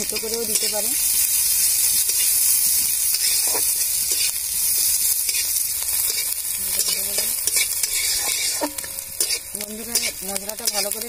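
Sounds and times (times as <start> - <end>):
onion sizzling in oil: 0.0 - 11.0
metal spatula scraping pan: 3.1 - 4.4, 5.3 - 11.0.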